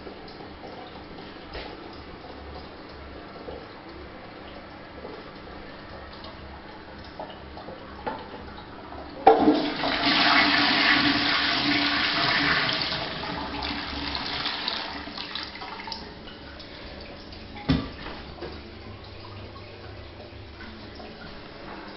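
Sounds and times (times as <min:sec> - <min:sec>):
toilet flushing water rush: 0:09.2 - 0:21.9.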